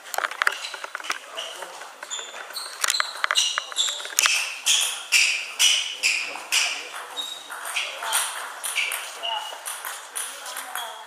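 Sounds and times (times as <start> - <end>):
shoes squeaking on floor: 0.0 - 11.0
table tennis ball clicking: 6.6 - 11.0.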